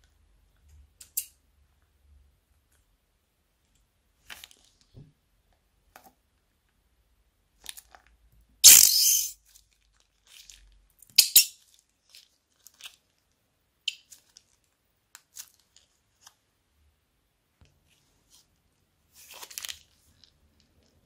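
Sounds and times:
plastic bag crinkling: 19.2 - 21.0.

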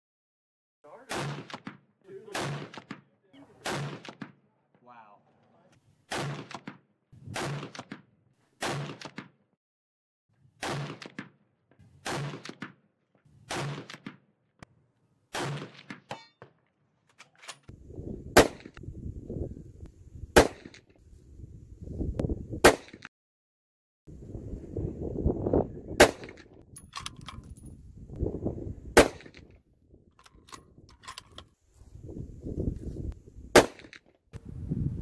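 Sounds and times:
rifle shots: 1.0 - 4.4, 6.1 - 8.0, 8.6 - 9.3, 10.6 - 11.3, 12.0 - 12.7, 13.4 - 14.2, 15.3 - 16.0, 26.0 - 26.4, 29.0 - 29.4, 33.6 - 34.0
bullets hitting steel plate: 15.4 - 16.4
wind rumble on microphone: 17.7 - 20.4, 21.0 - 22.7, 24.1 - 33.6, 34.4 - 35.0.

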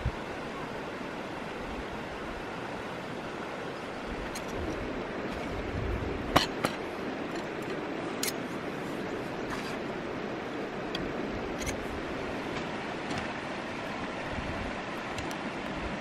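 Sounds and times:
stream rushing: 0.0 - 16.0
metal tent poles clicking together: 6.3 - 8.4, 11.0 - 11.8.

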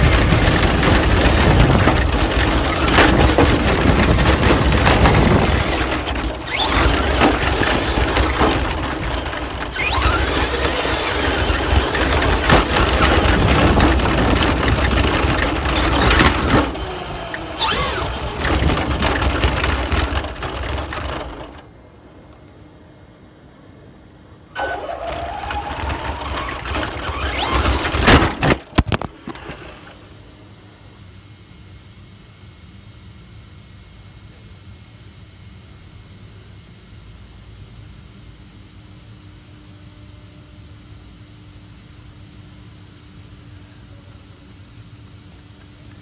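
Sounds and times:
remote-control car motor: 0.0 - 21.6, 24.6 - 29.9
wheels rumbling and rattling: 0.0 - 21.7, 24.6 - 30.2.

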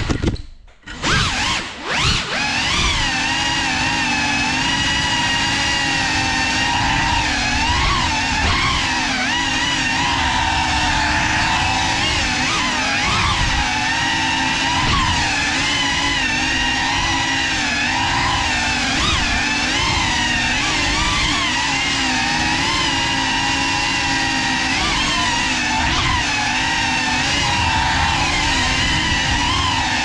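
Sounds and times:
drone motors whining: 0.9 - 30.0.

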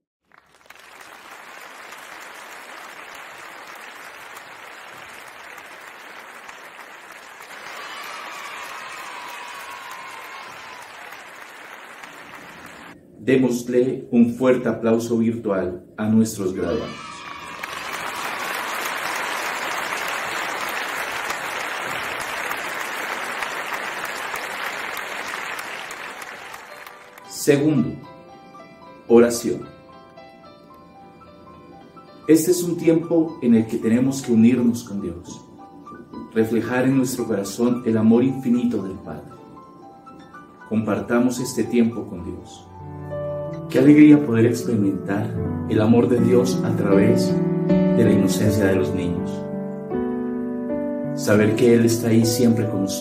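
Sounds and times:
crowd applause: 0.3 - 13.0, 16.9 - 27.3.

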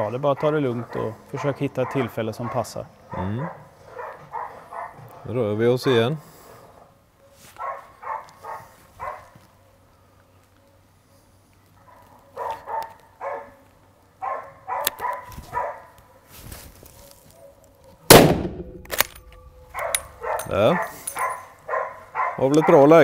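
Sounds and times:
dog barking: 0.4 - 5.2, 6.8 - 9.8, 11.8 - 13.6, 14.2 - 16.3, 19.4 - 23.0.

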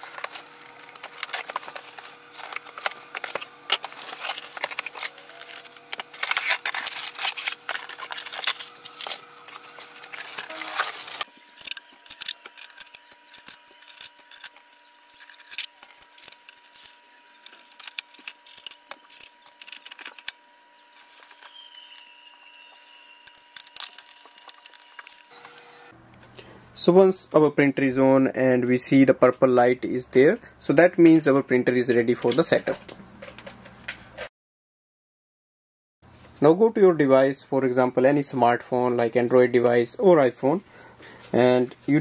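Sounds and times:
cardboard scraping and rustling: 0.0 - 20.3
blade cutting cardboard: 0.0 - 25.7
tape peeling: 0.0 - 25.7.

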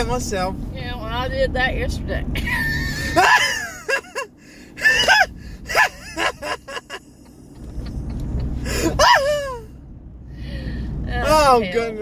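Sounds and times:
person laughing hard: 2.4 - 9.6.

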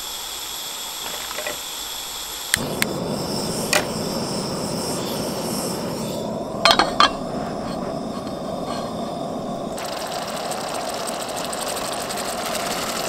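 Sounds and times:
gas stove burner rushing: 2.5 - 13.0
frying pan clanking on grate: 6.6 - 7.2.

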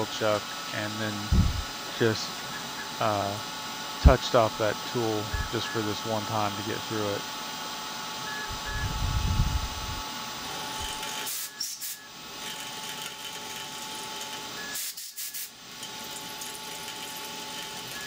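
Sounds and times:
low rumble: 1.3 - 1.7.

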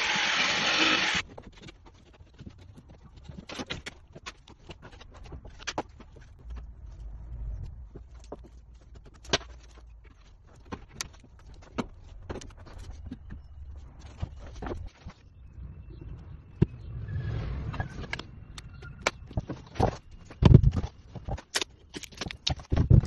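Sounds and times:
wooden pieces knocking and clattering: 18.0 - 23.0.

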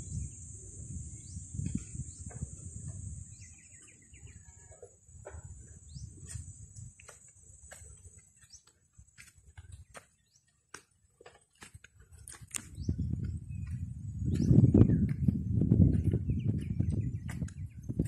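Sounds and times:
high-pitched insect drone: 0.0 - 3.6
wind rumble on microphone: 0.0 - 8.0, 12.1 - 18.0
small birds chirping: 0.0 - 18.0.

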